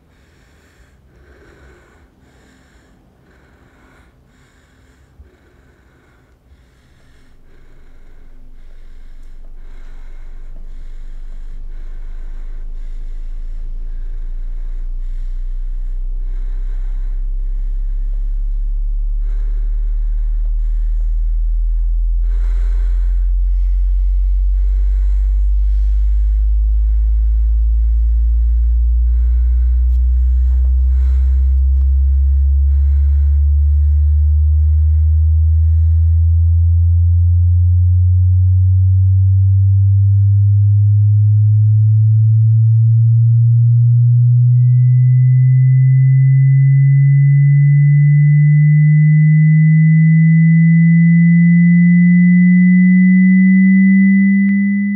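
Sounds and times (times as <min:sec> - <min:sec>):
muffled rustles and breaths: 0:00.0 - 0:37.0
low synthesized drone: 0:00.0 - 0:54.9.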